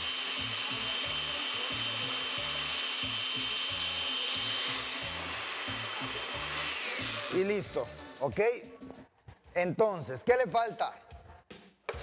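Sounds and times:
blender running: 0.0 - 8.2.

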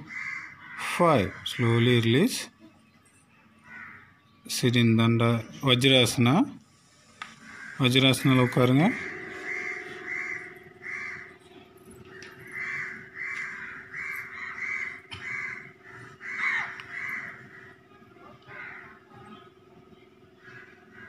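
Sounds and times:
crow cawing: 0.0 - 1.8, 3.6 - 4.1, 7.3 - 11.4, 12.0 - 17.8, 18.4 - 19.1, 20.4 - 21.0
faint steady hum: 1.0 - 21.0.

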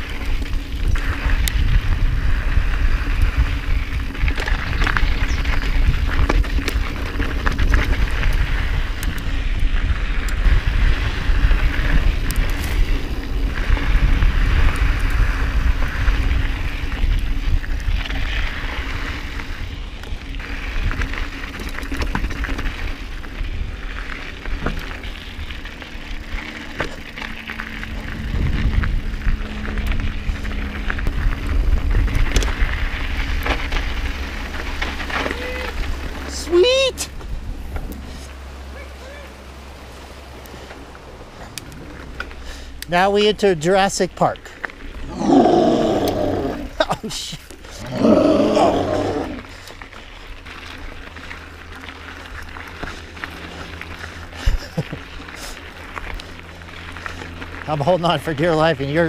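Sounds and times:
wind on microphone: 0.0 - 19.9, 27.9 - 33.4
bike rattling and clicking: 0.0 - 36.4, 39.9 - 59.0
tyres crunching on dirt and stones: 0.0 - 36.4, 39.4 - 59.0.

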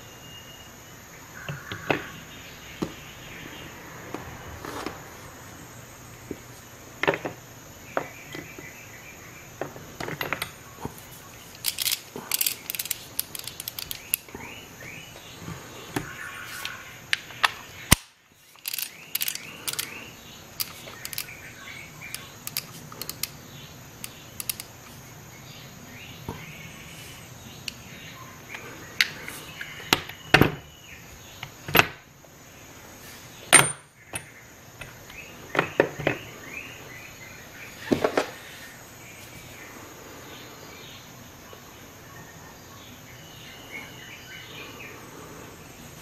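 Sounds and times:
metal sockets clinking: 11.5 - 14.3, 17.9 - 20.0, 20.6 - 21.4, 22.0 - 23.4, 24.0 - 24.8
ratchet clicking: 11.5 - 14.3, 17.9 - 20.0, 20.6 - 21.4, 22.1 - 23.4, 24.0 - 24.7.

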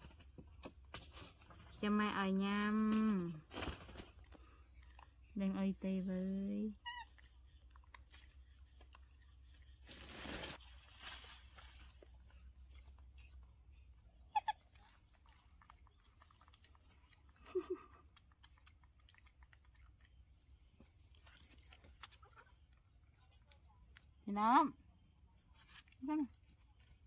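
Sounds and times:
rustle: 2.6 - 4.3, 9.8 - 12.0
monkey chewing food: 3.7 - 24.3.

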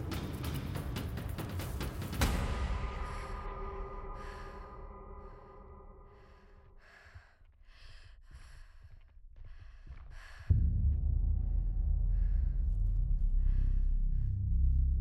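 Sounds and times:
woman breathing hard: 2.5 - 10.6, 11.8 - 14.5
loud low throbbing drone: 10.5 - 15.0.

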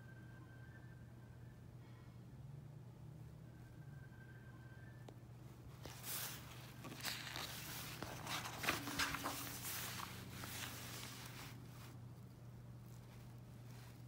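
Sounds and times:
book page turning: 5.8 - 12.0.

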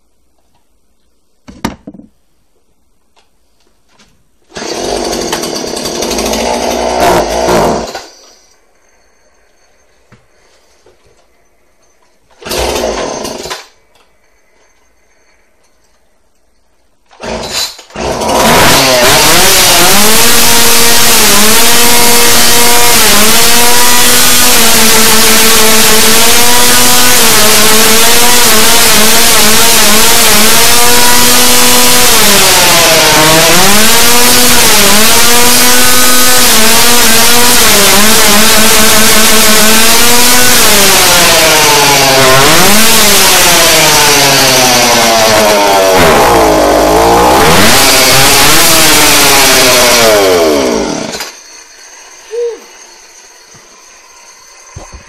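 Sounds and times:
two-stroke chainsaw revving: 4.5 - 8.2, 12.4 - 13.7, 17.2 - 51.4.

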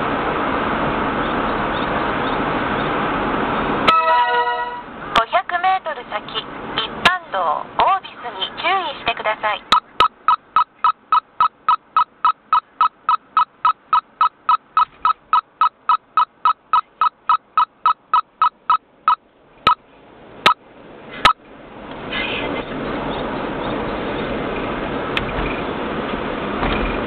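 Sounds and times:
car road and engine noise: 0.0 - 27.0
electronic warning beeps: 9.7 - 19.8.

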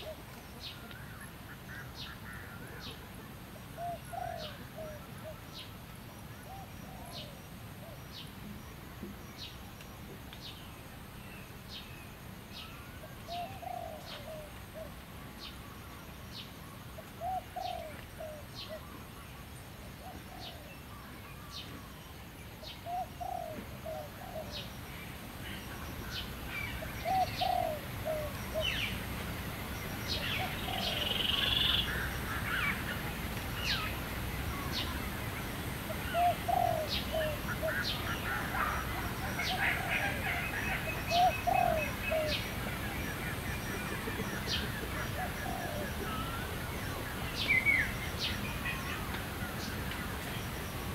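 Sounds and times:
doves cooing: 3.8 - 5.5, 6.4 - 8.0, 13.2 - 15.0, 17.1 - 19.1, 20.0 - 20.8, 22.8 - 24.7, 26.6 - 29.0, 30.2 - 33.0, 35.8 - 48.0
birds chirping: 10.4 - 19.4, 20.0 - 50.9.

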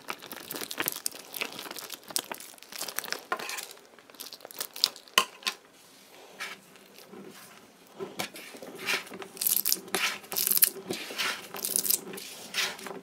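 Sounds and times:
water beads crackling in balloon: 0.0 - 5.3, 8.5 - 13.0.

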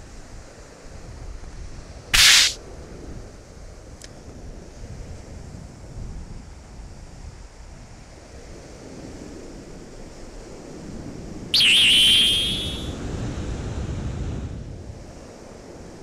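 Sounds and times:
loud high warbling tone: 11.6 - 13.0.

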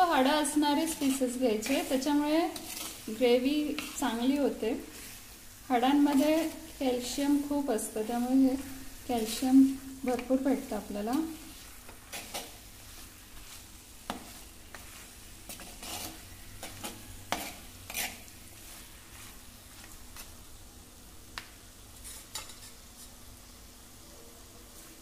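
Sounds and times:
faint sizzling: 0.0 - 25.0
spoon scraping and knocking pot: 0.8 - 4.1, 15.5 - 18.2, 22.0 - 22.8.

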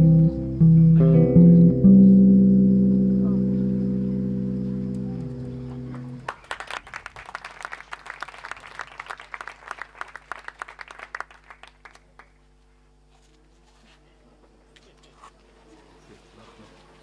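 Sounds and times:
audience applause: 5.9 - 12.4.

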